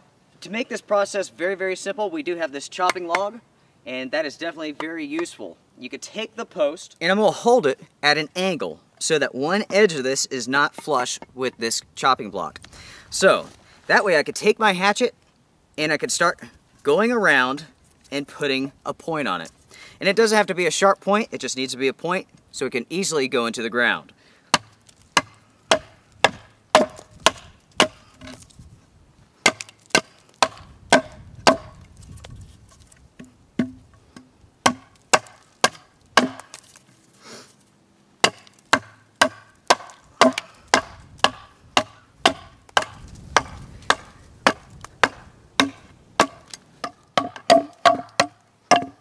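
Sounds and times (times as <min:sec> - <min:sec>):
axe chopping wood: 0:24.5 - 0:28.4, 0:29.4 - 0:32.4, 0:33.2 - 0:36.8, 0:38.2 - 0:49.0.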